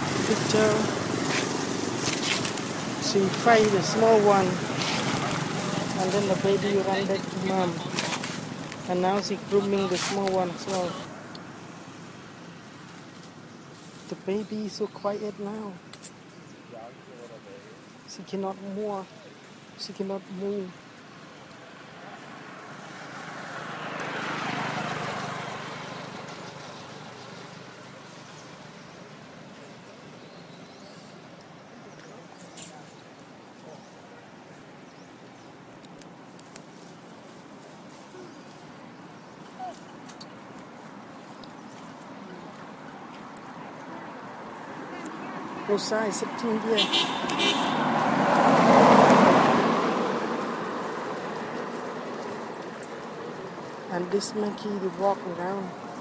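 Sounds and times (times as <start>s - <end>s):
vehicle passing: 0.0s - 13.9s, 20.4s - 29.9s, 36.8s - 56.0s
vehicle driving past: 22.2s - 28.7s, 44.0s - 54.6s.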